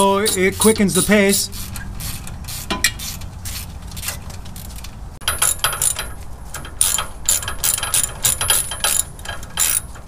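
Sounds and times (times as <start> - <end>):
hand ratchets clicking: 0.0 - 3.2, 5.2 - 10.0.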